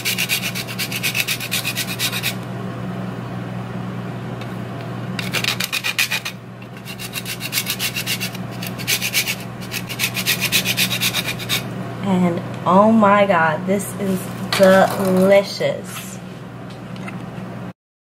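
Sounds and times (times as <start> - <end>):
cheese grating on metal grater: 0.0 - 2.4, 5.2 - 11.7.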